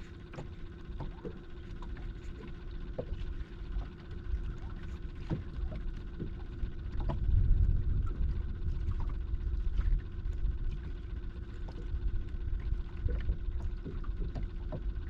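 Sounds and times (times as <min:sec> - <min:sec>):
faint steady hum: 0:00.0 - 0:15.0
water lapping at hull: 0:00.0 - 0:15.0
wind rumbling on microphone: 0:04.3 - 0:15.0.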